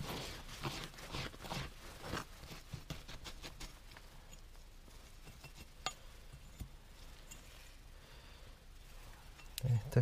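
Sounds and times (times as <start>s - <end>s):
digging scrapes in sandy soil: 0.0s - 4.0s
soft rustling: 0.0s - 10.0s.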